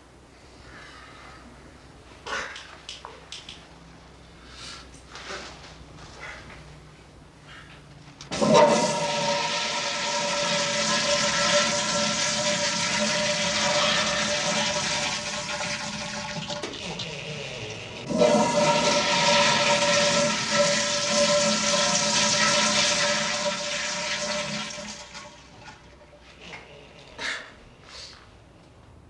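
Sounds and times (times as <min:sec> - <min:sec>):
toilet flushing: 0:08.3 - 0:26.7.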